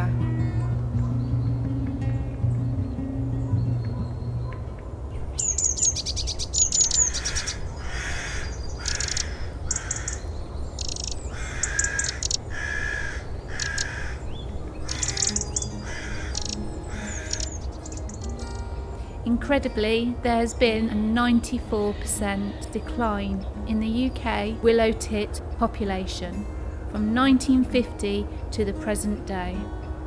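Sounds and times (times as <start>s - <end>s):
bird harsh repeated calls: 3.5s - 18.7s
bird calling thin high notes: 5.4s - 10.2s, 10.8s - 18.7s.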